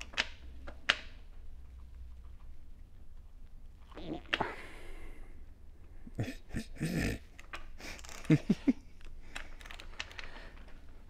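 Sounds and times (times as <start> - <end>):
man breathing hard: 4.4 - 6.2
man grunting: 6.2 - 7.2.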